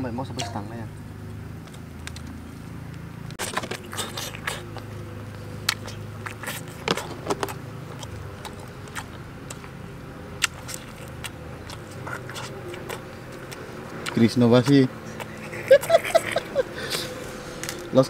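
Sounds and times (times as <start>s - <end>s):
low steady hum: 0.0s - 18.0s
person chewing and biting meat: 3.4s - 17.8s.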